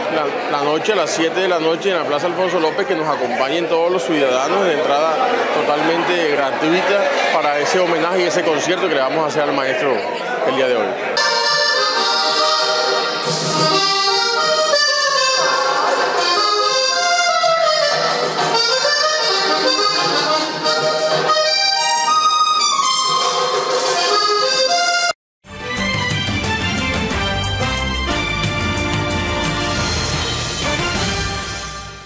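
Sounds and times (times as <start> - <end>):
button accordion playing: 11.2 - 32.0
news theme jingle: 20.3 - 32.0.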